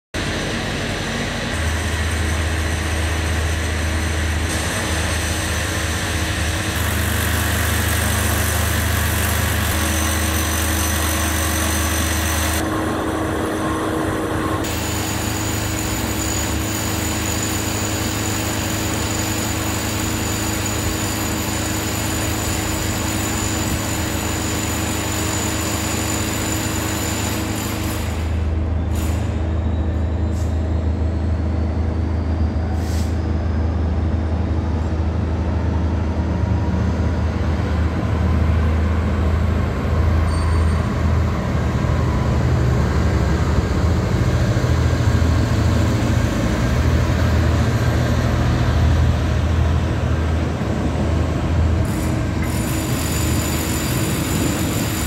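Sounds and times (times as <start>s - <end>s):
constant rushing drone: 0.2s - 55.0s
low mechanical hum: 7.4s - 16.6s.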